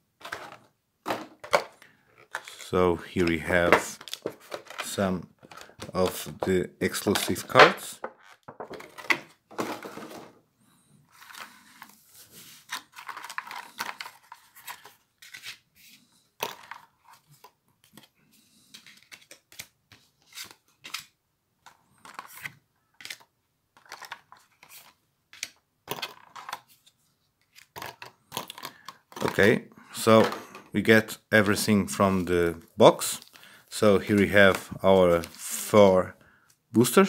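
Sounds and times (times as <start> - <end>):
plastic packaging rustling and crinkling: 11.1 - 18.2.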